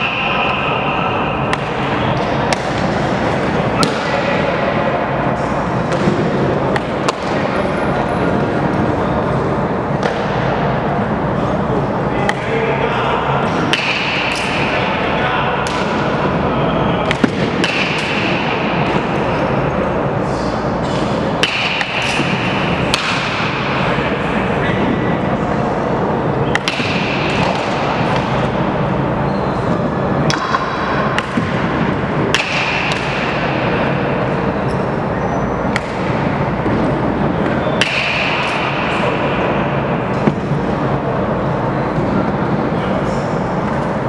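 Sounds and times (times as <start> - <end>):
indoor hall din: 0.0 - 44.0
baseball bat cracks: 20.9 - 23.8, 26.5 - 28.3, 30.2 - 33.6, 37.8 - 38.9.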